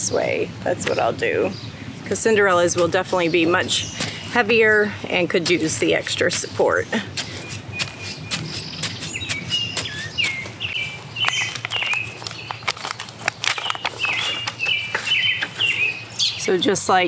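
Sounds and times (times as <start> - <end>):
birds chirping: 0.0 - 17.0
plastic tray clicks and crackles: 11.2 - 14.7.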